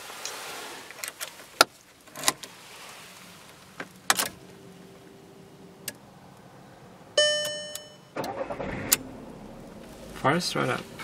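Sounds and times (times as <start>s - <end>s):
ignition key clicks: 7.2s - 9.0s.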